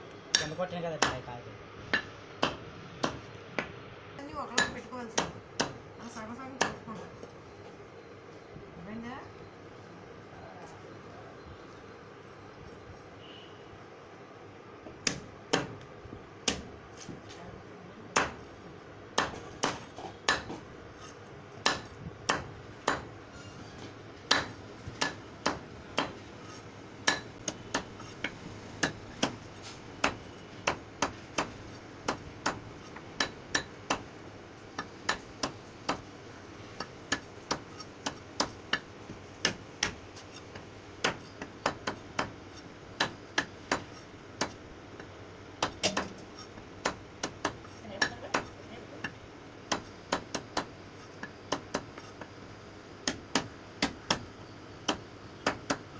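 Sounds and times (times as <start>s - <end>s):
knife chopping fruit on wood: 0.3s - 1.3s, 1.9s - 3.8s, 4.4s - 5.8s, 6.5s - 7.1s, 14.9s - 17.3s, 18.1s - 18.4s, 19.1s - 23.1s, 23.8s - 34.1s, 36.8s - 52.3s, 53.0s - 55.9s.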